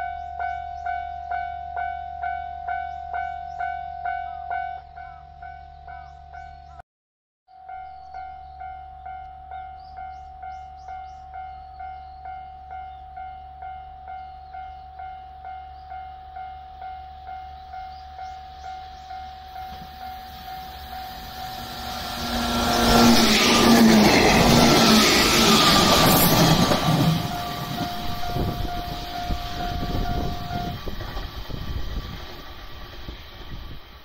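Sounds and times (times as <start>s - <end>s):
electric train passing: 7.7s - 34.0s.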